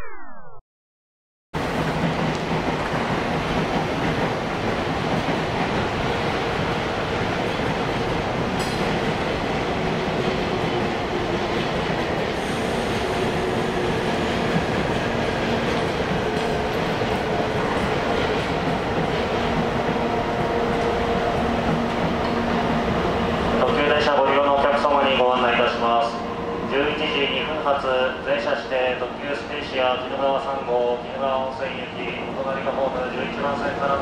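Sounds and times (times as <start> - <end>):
wheels clacking on rails: 1.6 - 25.1
electric locomotive rumbling: 1.6 - 34.0.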